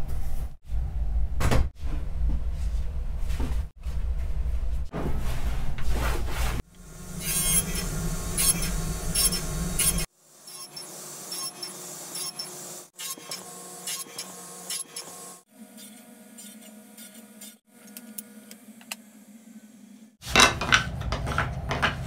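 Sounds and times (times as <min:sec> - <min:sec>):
steady low hum: 0:06.7 - 0:10.1
wood rubbing and scraping: 0:20.2 - 0:22.0
wooden pieces knocking: 0:20.2 - 0:22.0.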